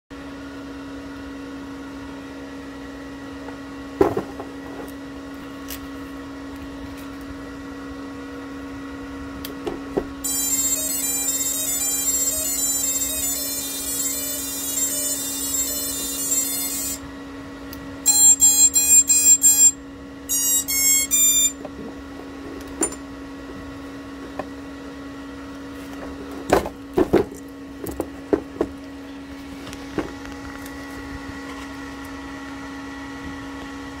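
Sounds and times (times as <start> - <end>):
steady hum: 2.8 - 32.9
start-up tune through motors: 10.2 - 21.9
quick electronic beeps: 10.3 - 17.0, 18.1 - 21.6.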